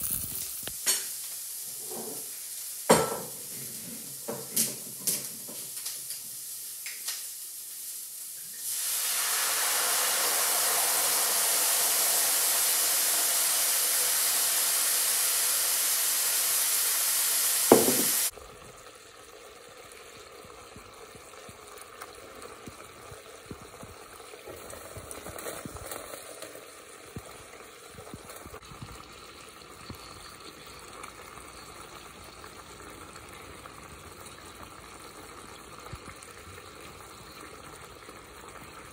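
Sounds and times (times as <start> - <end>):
food sizzling in a hot pan: 0.0 - 19.4
gravy simmering in a skillet: 0.0 - 38.9.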